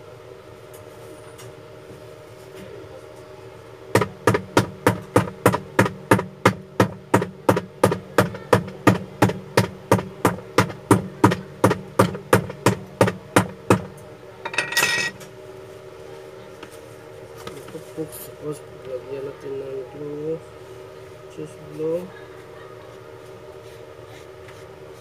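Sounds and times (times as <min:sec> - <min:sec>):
hammer pounding a sole: 0:04.0 - 0:13.9.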